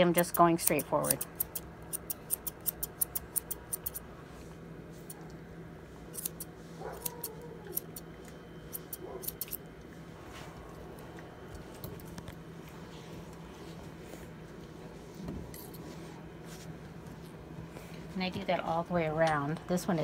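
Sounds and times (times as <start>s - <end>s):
grooming shears snipping: 0.0s - 4.0s, 6.1s - 8.0s, 8.7s - 9.6s.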